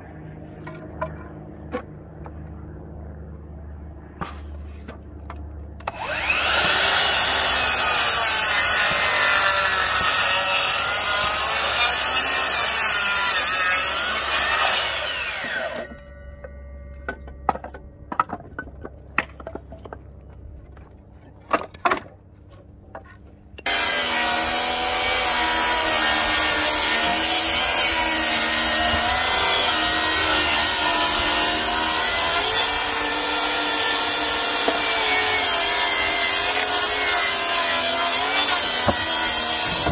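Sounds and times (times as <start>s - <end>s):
miter saw cutting wood: 5.8s - 16.1s, 23.6s - 39.9s
table saw cutting a board: 5.9s - 16.0s, 23.6s - 39.9s
wood knocks and clatter: 17.0s - 23.3s.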